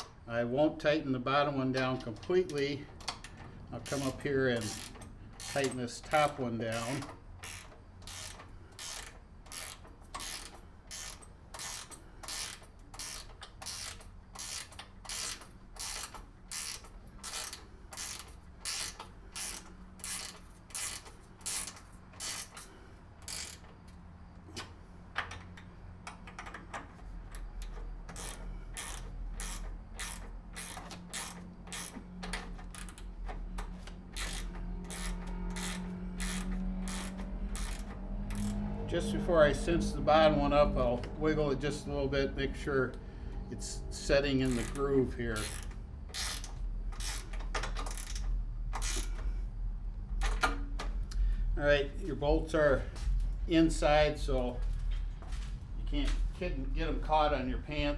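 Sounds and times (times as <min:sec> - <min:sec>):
ratchet wrench clicking: 0:02.0 - 0:24.0, 0:24.6 - 0:39.2, 0:43.8 - 0:49.4.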